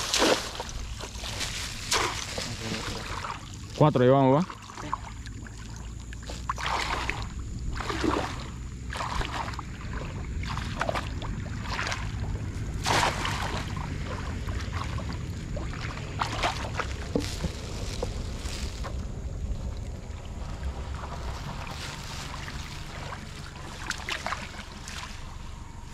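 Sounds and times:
shallow water splashing: 0.0 - 25.9
steady low rumble: 0.0 - 25.9.

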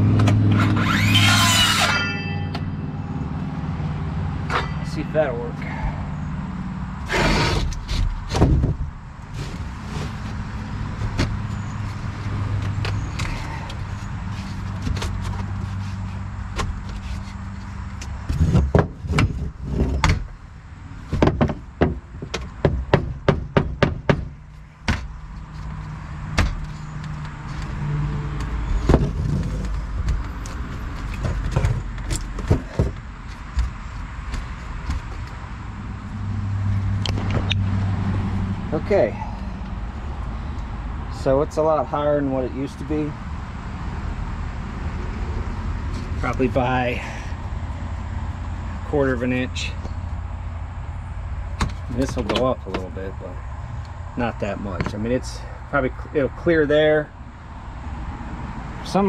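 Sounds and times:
wooden knocks on plywood: 21.1 - 24.3.

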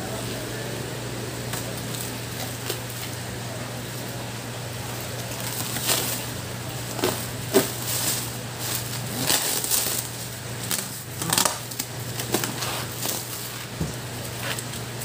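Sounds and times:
blade cutting packing tape: 8.8 - 13.5.

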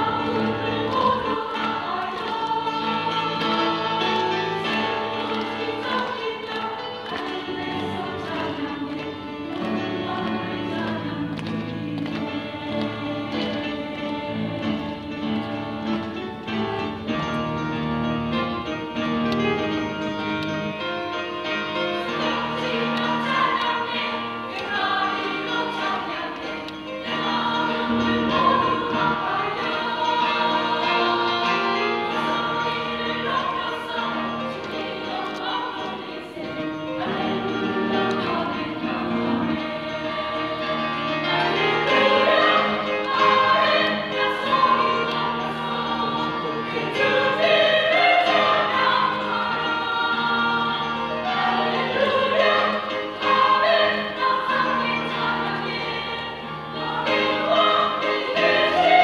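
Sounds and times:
women's choir singing: 0.0 - 59.0.

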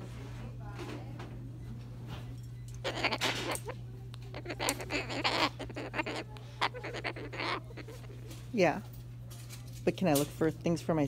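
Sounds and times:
steady low hum: 0.0 - 11.0
cockatoo squawking: 2.8 - 8.8.

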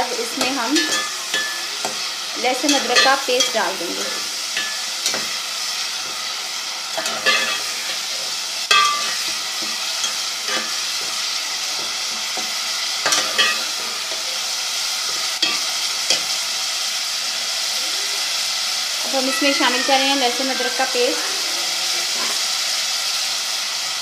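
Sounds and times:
meat sizzling in a pot: 0.0 - 24.0
spoon scraping and knocking pot: 0.4 - 3.6, 4.5 - 5.4, 6.9 - 8.1, 8.7 - 14.2, 15.0 - 16.4.

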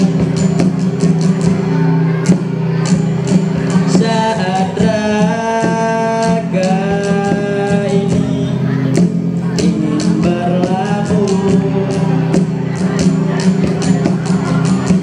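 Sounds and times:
acoustic guitar strumming: 0.0 - 15.0
cajon beat: 0.0 - 15.0
boy singing into a microphone: 3.6 - 15.0.

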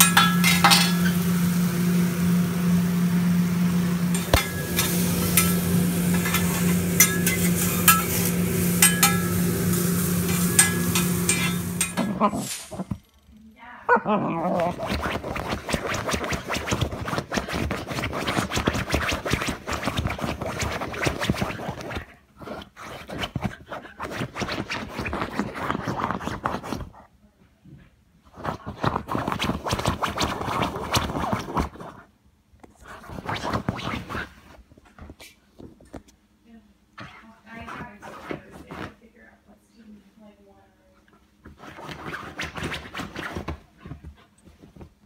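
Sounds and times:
dog scratching against microphone: 14.6 - 27.1, 28.3 - 32.1, 32.7 - 35.4, 37.0 - 39.1, 41.4 - 44.9.

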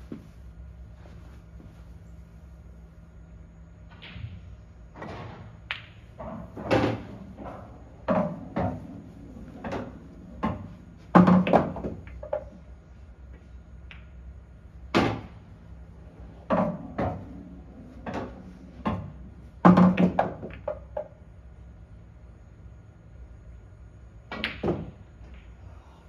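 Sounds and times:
pool balls clacking: 5.0 - 12.6, 16.1 - 21.2.

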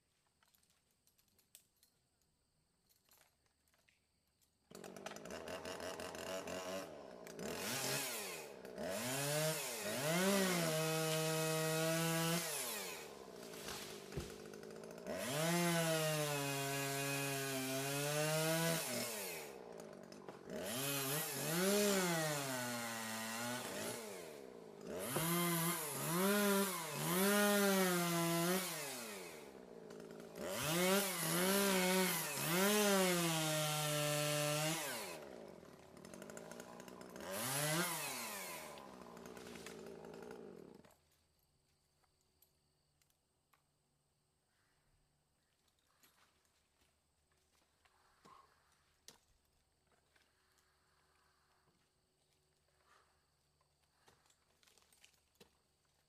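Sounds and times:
chainsaw revving and cutting: 4.7 - 41.0.

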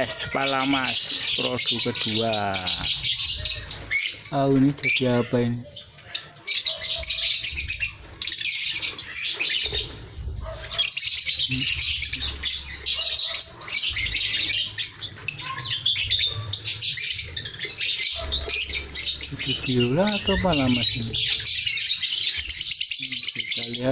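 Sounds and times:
lovebirds chirping: 0.0 - 23.9.

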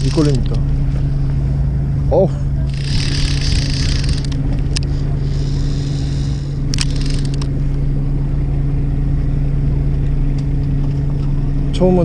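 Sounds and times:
boat engine humming: 0.0 - 12.0
sharp clicks: 2.7 - 4.9, 6.7 - 7.5
hiss: 5.2 - 7.3.

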